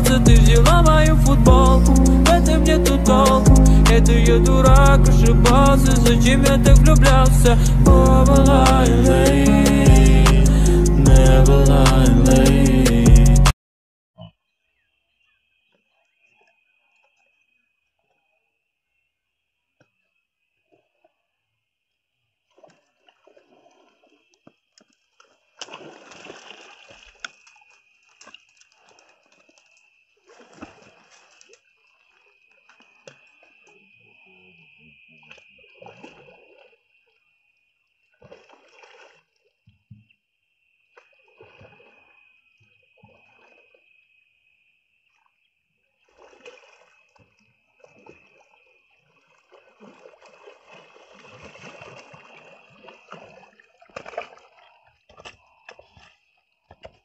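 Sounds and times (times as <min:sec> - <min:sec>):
fish splashing in water: 0:22.4 - 0:33.9, 0:35.2 - 0:37.1, 0:38.1 - 0:39.6, 0:40.9 - 0:43.9, 0:46.0 - 0:57.0.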